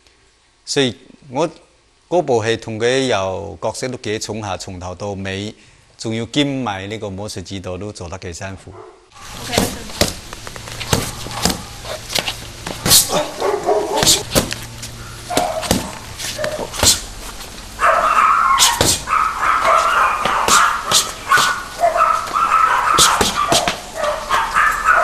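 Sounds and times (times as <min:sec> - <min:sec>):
punches slapping focus mitts: 0:09.5 - 0:10.2, 0:10.8 - 0:14.6, 0:15.4 - 0:17.1, 0:18.6 - 0:19.1, 0:20.2 - 0:21.6, 0:23.0 - 0:23.9.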